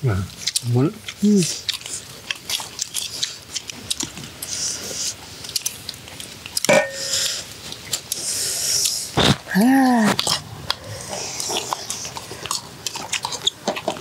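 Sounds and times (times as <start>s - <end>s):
person chewing crunchy food: 0.3s - 14.0s
metal spoon clinking on bowl: 6.7s - 7.3s.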